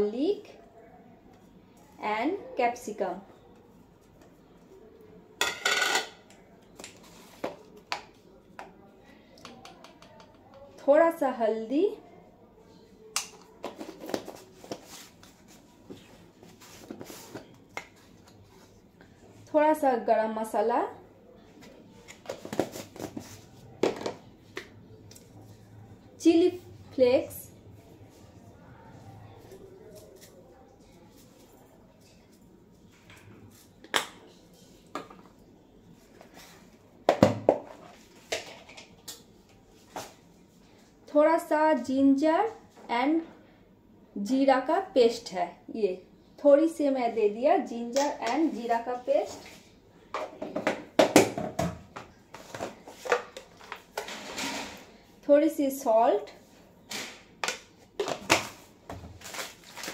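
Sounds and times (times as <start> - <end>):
plastic spice jars clicking and tapping: 9.4 - 10.6.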